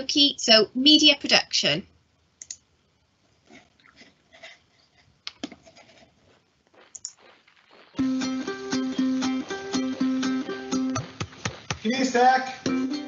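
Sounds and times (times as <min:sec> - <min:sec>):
small room noises: 0:00.0 - 0:13.0
faint clicks: 0:02.4 - 0:02.7
plucked-string music: 0:08.0 - 0:11.4, 0:12.6 - 0:13.0.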